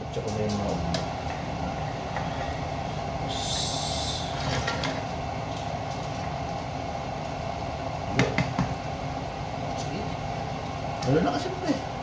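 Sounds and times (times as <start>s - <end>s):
low whirring drone: 0.0s - 12.0s
wooden spoon knocking on pot and plate: 8.1s - 8.8s.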